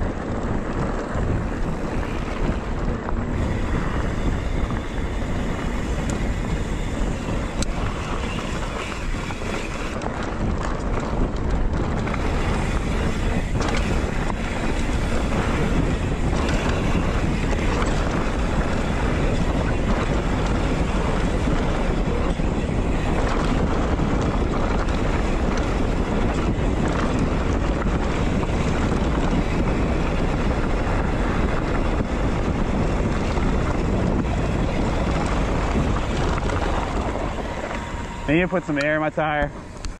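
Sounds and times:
faint clicks and rattles: 0:00.0 - 0:39.9
tyres rolling over gravel trail: 0:00.0 - 0:39.9
wind rushing on microphone: 0:00.0 - 0:39.9.

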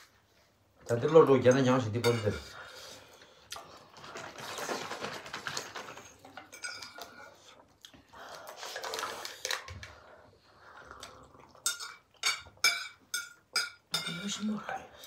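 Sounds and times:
soft eating noises: 0:00.0 - 0:15.0
cutlery clicking on ceramic bowls: 0:11.6 - 0:14.5.

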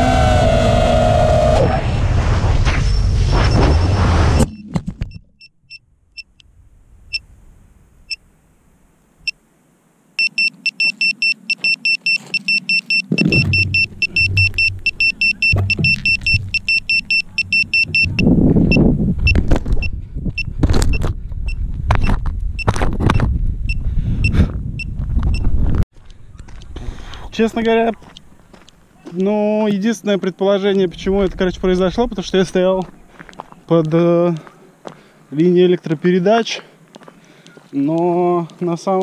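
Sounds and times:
drone motor and wind noise: 0:00.0 - 0:04.6, 0:10.8 - 0:26.8
drone buzzer beeping: 0:10.2 - 0:18.8.

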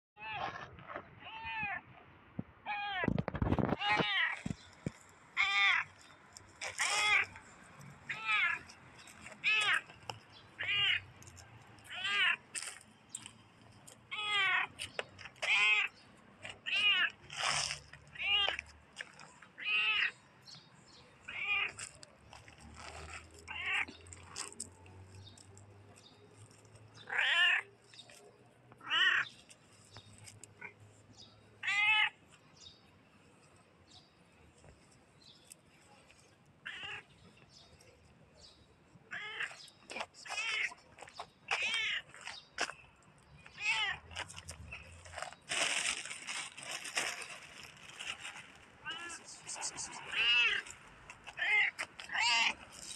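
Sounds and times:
cat meowing: 0:31.6 - 0:32.1, 0:48.8 - 0:49.3, 0:49.9 - 0:50.7, 0:51.4 - 0:52.6.

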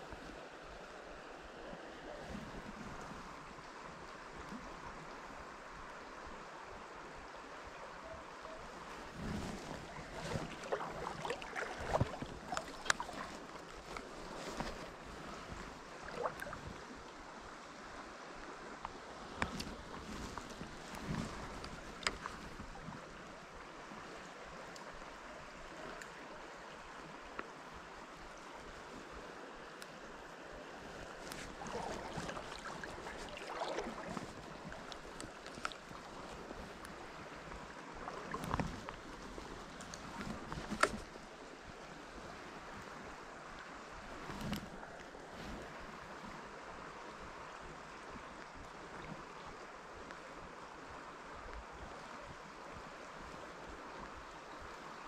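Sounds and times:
river water rushing: 0:00.0 - 0:51.4.

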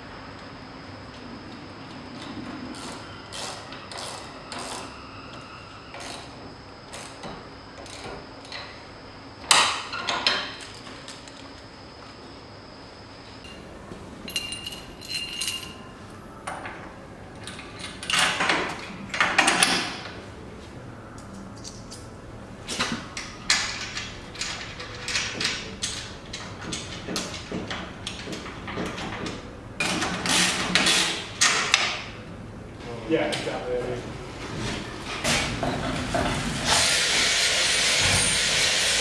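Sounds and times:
metal clinks and scrapes: 0:14.3 - 0:15.9.

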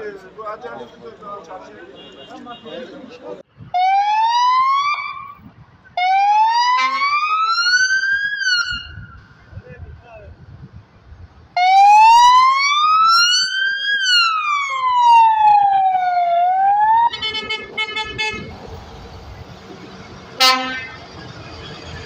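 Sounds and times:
engine and traffic noise: 0:00.0 - 0:22.0
police siren wailing: 0:03.8 - 0:05.3, 0:06.0 - 0:09.0, 0:11.6 - 0:17.6.

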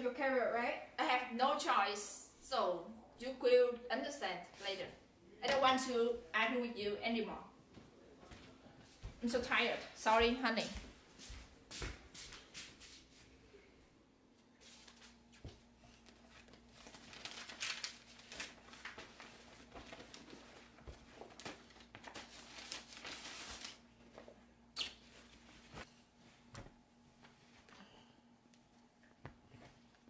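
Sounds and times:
fabric rustling: 0:15.9 - 0:24.4.

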